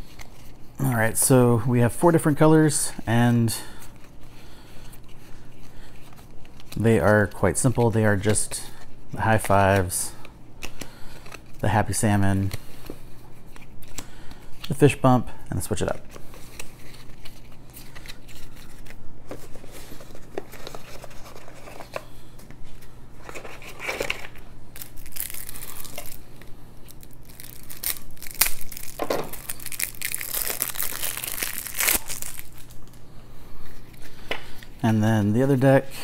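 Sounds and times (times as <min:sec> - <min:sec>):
playing cards handled: 0:15.6 - 0:33.0
plastic wrap crinkling: 0:23.2 - 0:33.0.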